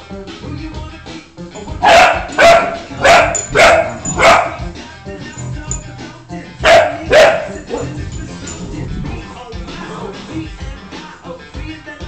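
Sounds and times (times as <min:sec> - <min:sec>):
puppy barking: 0:01.7 - 0:04.7, 0:06.6 - 0:08.3.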